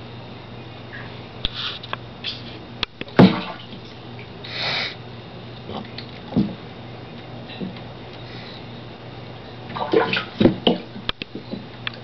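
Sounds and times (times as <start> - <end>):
steady low hum: 0.0 - 12.0
sharp water smack: 3.2 - 3.6
alligator splashing in water: 9.8 - 10.7.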